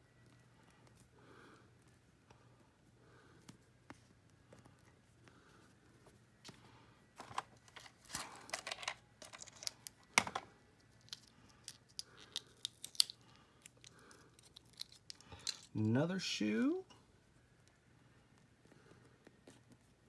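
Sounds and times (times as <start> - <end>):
plastic accessories clicking: 7.2 - 10.4
plastic wrapping crinkling: 10.9 - 15.7.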